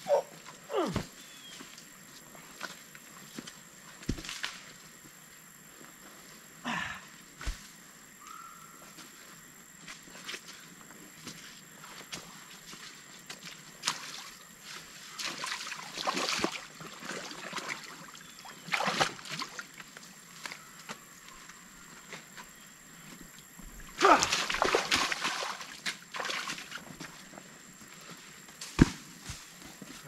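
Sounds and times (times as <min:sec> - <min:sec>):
creek water sloshing and splashing: 0:13.4 - 0:20.1, 0:23.7 - 0:27.3.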